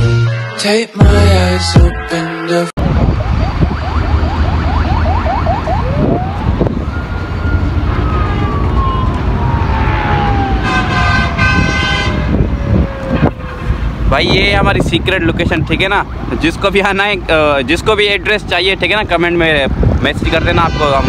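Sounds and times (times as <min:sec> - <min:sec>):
siren yelping and wailing: 0:02.8 - 0:13.8
road rumble: 0:02.8 - 0:21.0
wind noise: 0:02.8 - 0:21.0.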